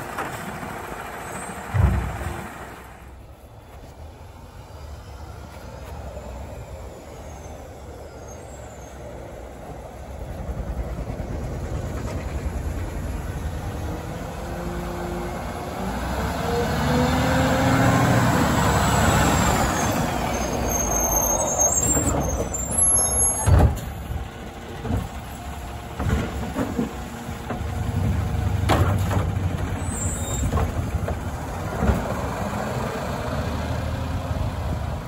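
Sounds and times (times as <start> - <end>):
garbage truck diesel engine: 0.0 - 35.0
clunks from truck body and arm: 1.4 - 2.8, 23.2 - 32.3.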